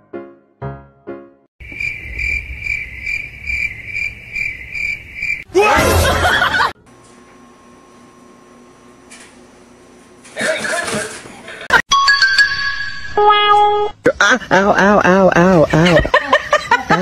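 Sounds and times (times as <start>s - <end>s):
piano music: 0.0s - 1.5s
high-pitched cricket-like chirps: 1.6s - 5.5s.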